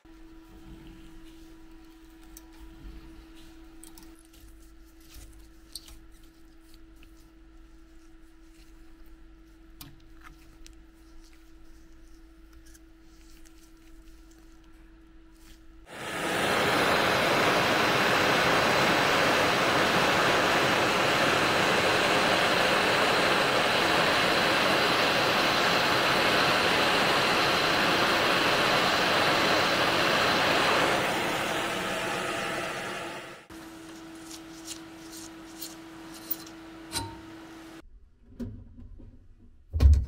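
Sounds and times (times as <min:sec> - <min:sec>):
blowtorch hissing: 0:15.9 - 0:33.5.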